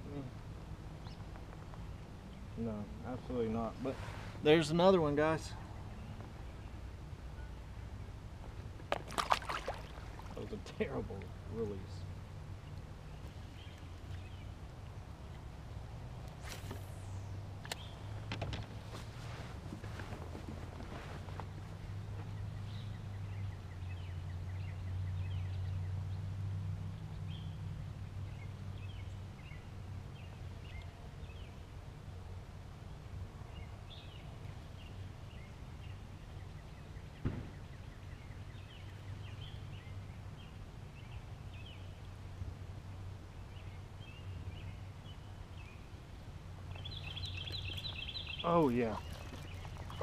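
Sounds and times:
small birds chirping: 9.1s - 15.4s, 43.4s - 50.0s.

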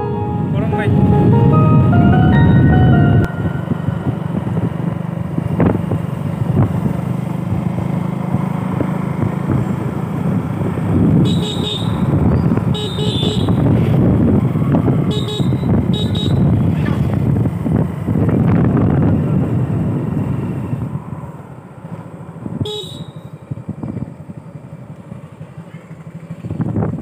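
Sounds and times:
high-pitched bursts: 0.0s - 4.8s
wind and road noise: 0.0s - 27.0s
motorcycle engine running steadily: 4.0s - 19.3s, 22.4s - 27.0s.

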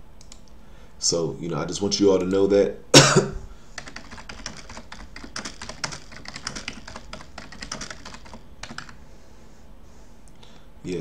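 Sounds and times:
keyboard typing: 3.8s - 9.0s.

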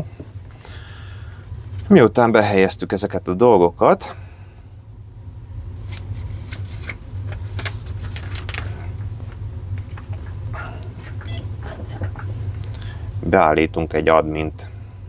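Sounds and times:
steady low hum: 0.0s - 15.0s
paper pages turning: 5.8s - 9.1s.

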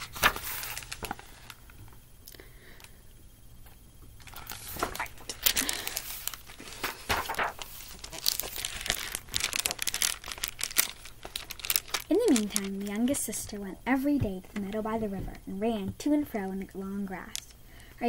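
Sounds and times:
book pages rustling: 0.0s - 1.6s, 4.2s - 13.2s.

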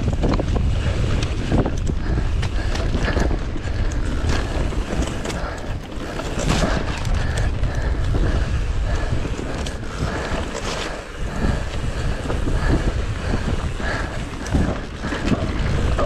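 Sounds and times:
bike rattling clicks: 0.0s - 16.0s
wind rumbling on microphone: 0.0s - 16.0s.

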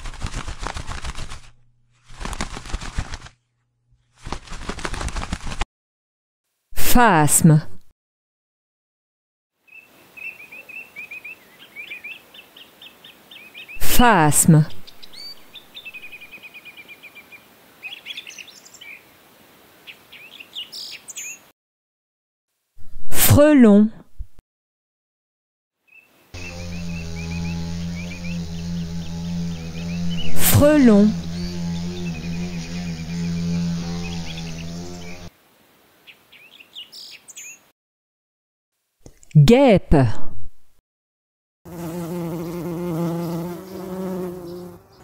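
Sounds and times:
rapid crackling clicks: 0.0s - 1.6s, 2.2s - 3.4s
small birds chirping: 9.7s - 13.8s, 14.8s - 19.1s, 19.8s - 21.5s, 25.9s - 35.3s, 36.0s - 37.7s, 41.8s - 45.0s.

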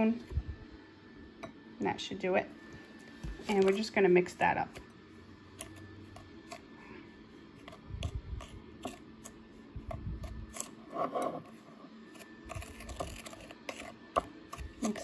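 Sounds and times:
spoon scraping glass bowl: 7.6s - 9.4s, 10.2s - 15.0s.

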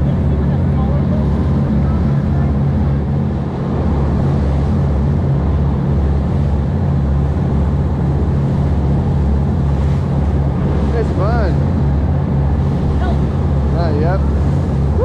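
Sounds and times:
boat engine drone: 0.0s - 15.0s
water rushing past hull: 0.0s - 15.0s.

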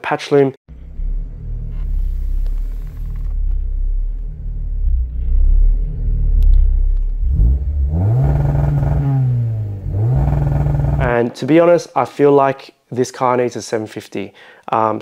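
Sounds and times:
car engine idling and revving: 0.7s - 11.1s.

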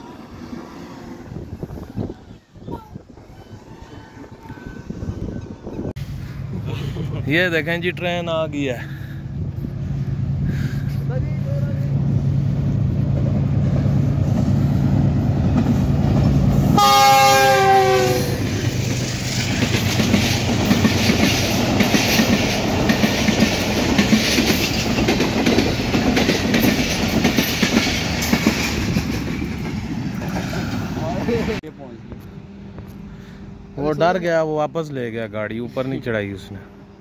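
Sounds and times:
diesel locomotive engine droning: 0.0s - 37.0s
train horn: 16.7s - 18.6s
train wheels clattering over rail joints: 18.9s - 31.6s.

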